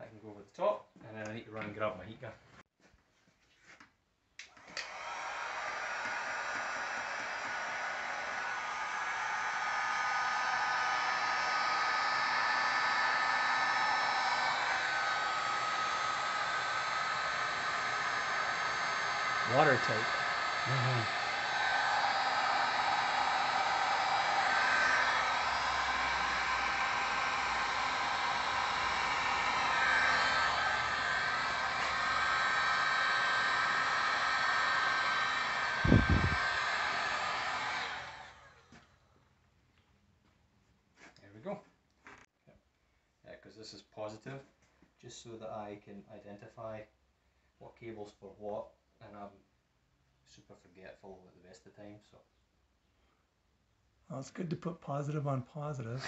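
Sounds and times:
heat gun blowing hot air: 4.5s - 38.7s.

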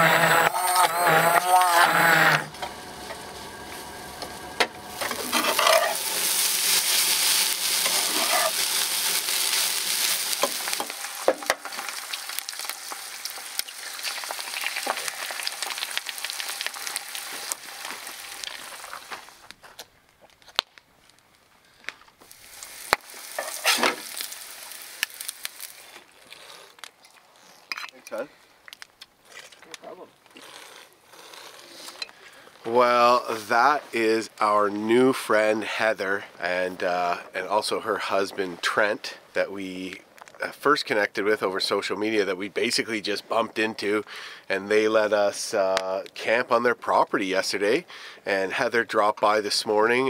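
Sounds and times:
eggs sizzling in a pan: 0.0s - 19.6s, 22.2s - 26.9s.

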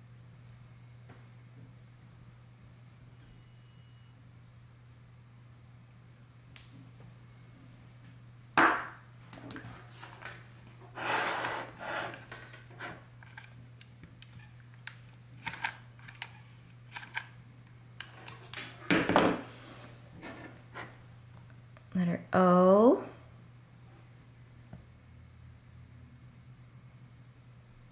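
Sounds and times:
loud knock: 8.6s - 9.0s.

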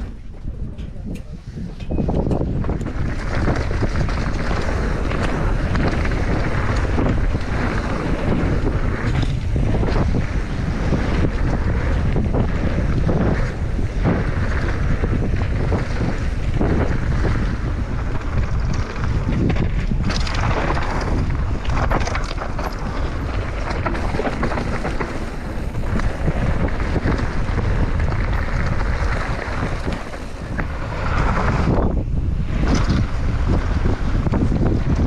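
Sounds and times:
bike tyres rolling over gravel: 0.0s - 35.0s
wind buffeting microphone: 0.0s - 35.0s.

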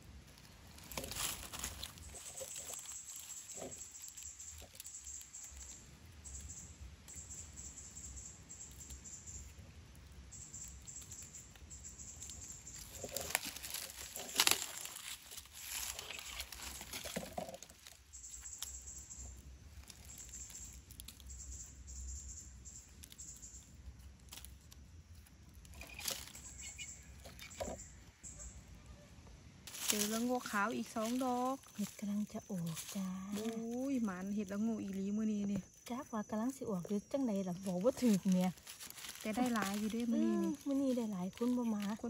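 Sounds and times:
dry leaves rustling and crackling: 0.0s - 28.6s, 29.6s - 42.0s.

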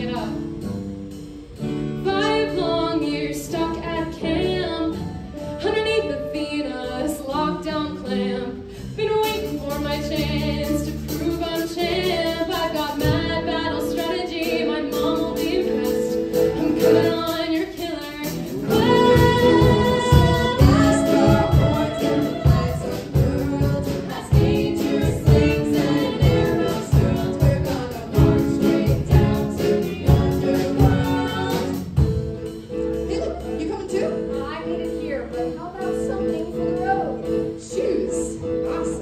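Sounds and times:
live band playing: 0.0s - 39.0s.

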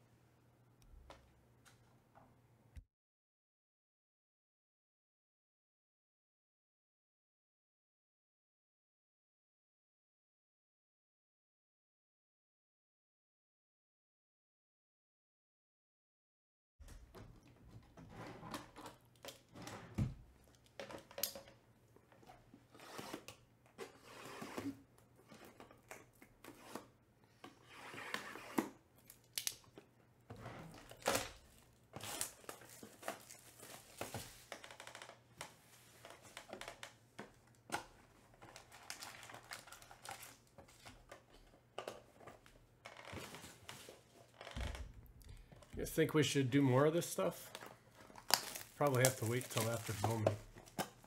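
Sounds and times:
foil packs crinkling and tearing: 30.8s - 35.0s, 38.4s - 40.8s, 47.4s - 51.0s.

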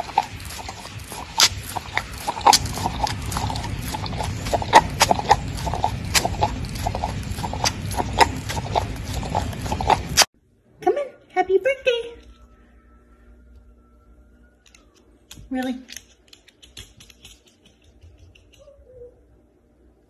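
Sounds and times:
dog lapping and licking: 0.0s - 10.3s.

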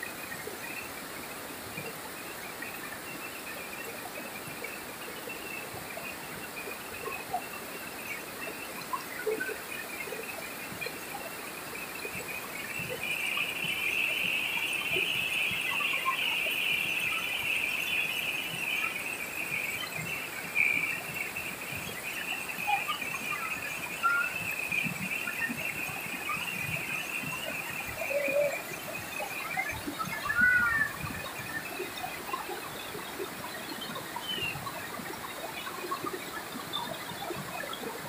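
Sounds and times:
river water over rocks: 0.0s - 38.0s
bird chirps: 12.8s - 31.7s
insects shrilling: 30.2s - 31.0s.

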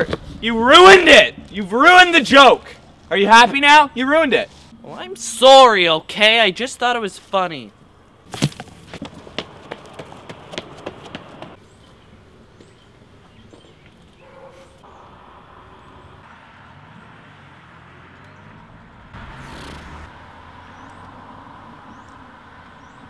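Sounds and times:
street background noise: 0.0s - 23.0s.

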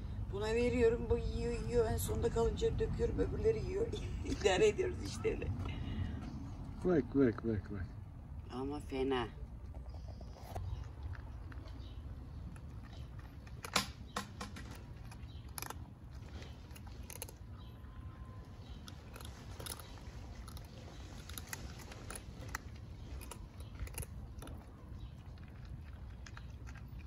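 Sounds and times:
cats crunching dry kibble: 9.5s - 27.0s.

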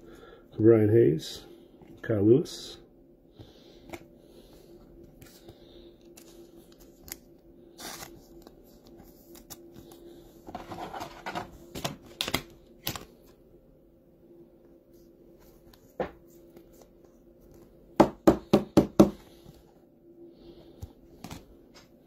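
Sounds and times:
faint steady hum: 0.0s - 22.0s
cards rustling and sliding: 3.8s - 13.4s.

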